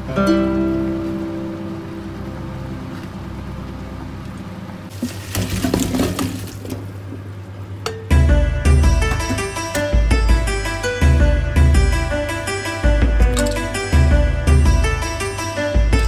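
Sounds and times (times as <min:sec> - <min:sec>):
water pouring into a colander: 0:04.9 - 0:06.9.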